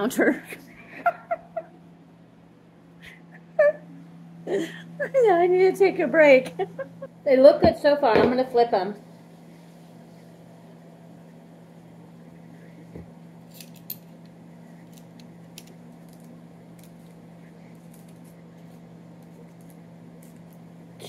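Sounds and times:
steady low hum: 0:00.0 - 0:21.0
clicks and taps of crisp chips: 0:13.6 - 0:20.7.

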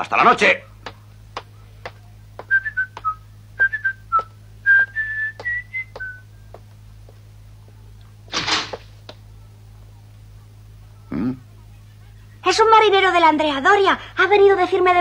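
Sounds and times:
man whistling a tune: 0:02.5 - 0:06.2
footsteps on wooden boards: 0:05.3 - 0:07.2.

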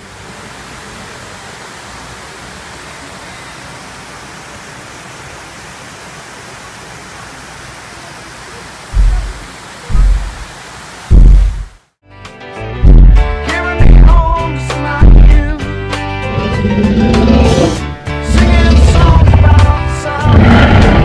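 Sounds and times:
water falling rushing hiss: 0:00.0 - 0:11.9, 0:16.9 - 0:21.0
loud low thump: 0:09.0 - 0:10.5, 0:11.1 - 0:11.7.

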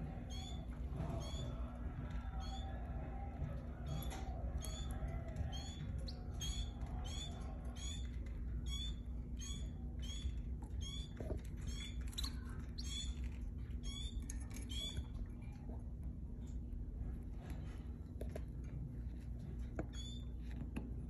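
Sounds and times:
canary chirping: 0:00.0 - 0:15.2, 0:19.8 - 0:20.4.

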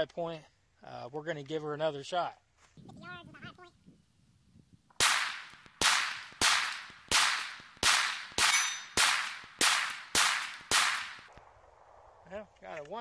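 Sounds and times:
pistol shots: 0:05.0 - 0:11.3.

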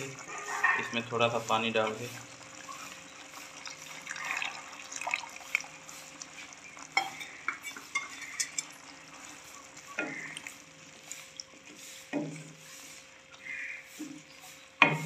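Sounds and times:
spatula scraping metal pan: 0:00.0 - 0:03.0, 0:07.0 - 0:08.8
food sizzling: 0:00.0 - 0:15.0.

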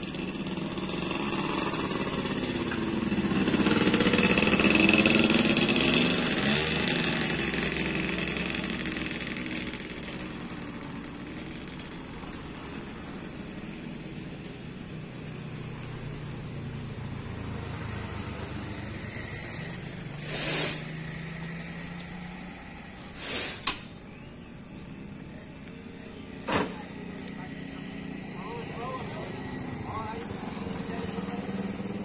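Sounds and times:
vehicle engine humming: 0:00.0 - 0:32.0
loud hissing bursts: 0:19.0 - 0:21.2, 0:23.0 - 0:24.0
sharp click: 0:23.5 - 0:24.0.

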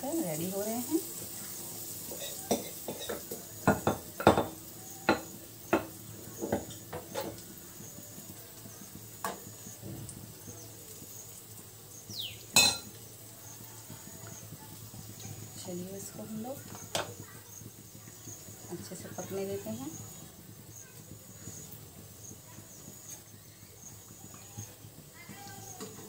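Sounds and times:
faint sizzle of frying: 0:00.0 - 0:26.0
spoon knocking against pan: 0:02.1 - 0:07.4, 0:12.5 - 0:13.0, 0:16.6 - 0:17.3.

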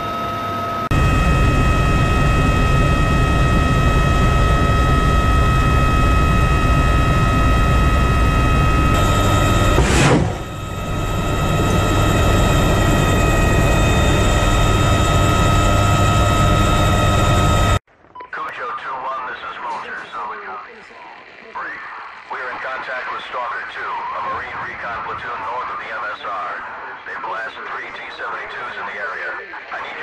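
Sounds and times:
helicopter rotor and turbine rumble: 0:00.0 - 0:17.8, 0:18.9 - 0:30.0
whining tones: 0:00.0 - 0:17.8
brief rushing surge: 0:09.8 - 0:10.5.

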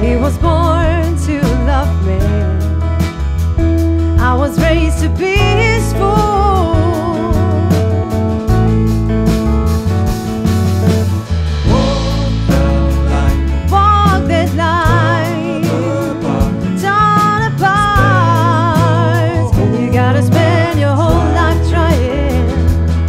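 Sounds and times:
woman singing: 0:00.0 - 0:02.8, 0:04.2 - 0:08.0, 0:11.7 - 0:23.0
soul band playing live: 0:00.0 - 0:23.0.

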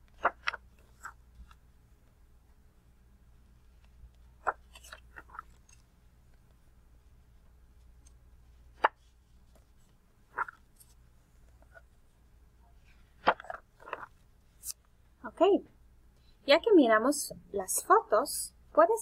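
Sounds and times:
pages being turned: 0:00.0 - 0:01.6, 0:03.9 - 0:05.8, 0:08.7 - 0:11.9, 0:12.9 - 0:14.8
faint low hum: 0:00.0 - 0:19.0.

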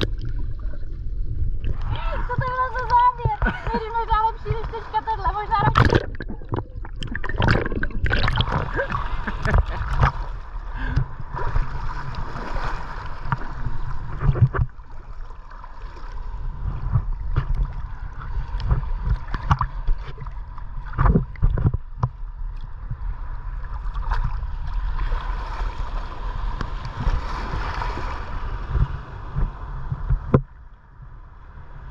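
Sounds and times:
water splashing against camera: 0:00.0 - 0:15.2, 0:16.7 - 0:22.2
seawater sloshing and lapping: 0:01.6 - 0:30.3.

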